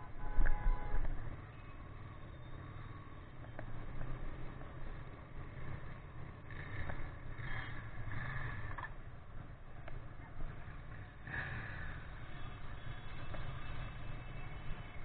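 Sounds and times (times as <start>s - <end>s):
road noise: 0.0s - 15.0s.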